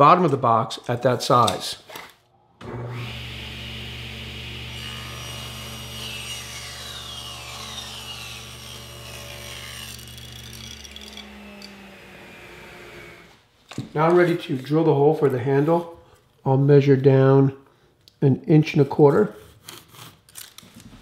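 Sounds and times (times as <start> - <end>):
table saw motor hum: 2.6 - 13.3
saw blade cutting wood: 4.7 - 13.3.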